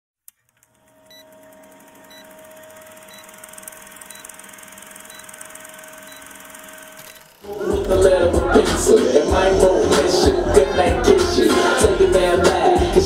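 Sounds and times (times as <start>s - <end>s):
film projector whirring: 0.5s - 8.0s
short high beeps: 3.1s - 3.4s, 4.0s - 4.4s, 5.1s - 5.4s, 6.1s - 6.4s.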